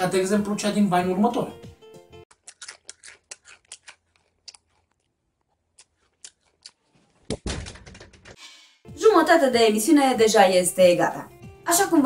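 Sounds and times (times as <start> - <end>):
open-mouthed chewing smacks: 2.3 - 7.1.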